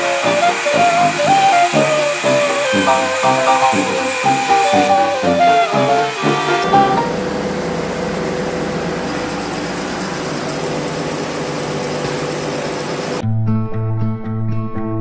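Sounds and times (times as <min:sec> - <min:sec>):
background music: 0:00.0 - 0:07.2
fast high ticking: 0:00.0 - 0:13.2
stone saw cutting with hum: 0:00.0 - 0:13.2.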